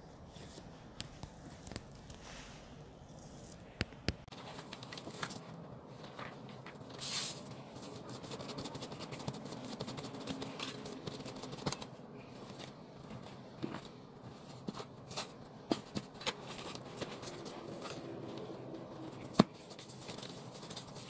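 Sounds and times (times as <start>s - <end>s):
soft patting and rustling: 0.3s - 18.4s
dough swishing: 7.0s - 11.8s.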